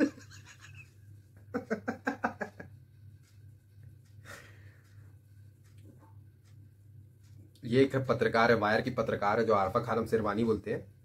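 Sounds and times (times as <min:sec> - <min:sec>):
man laughing: 0:00.0 - 0:02.8.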